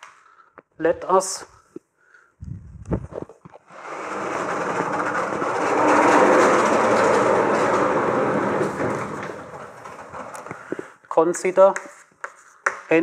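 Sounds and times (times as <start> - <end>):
sliding chalkboard panels rolling: 3.6 - 10.9.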